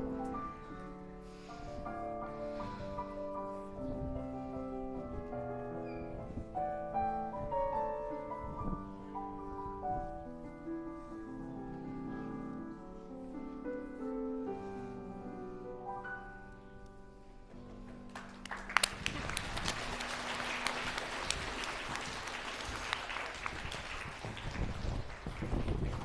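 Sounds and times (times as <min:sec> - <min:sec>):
piano music: 0:00.0 - 0:23.4
audience applause: 0:18.1 - 0:26.0.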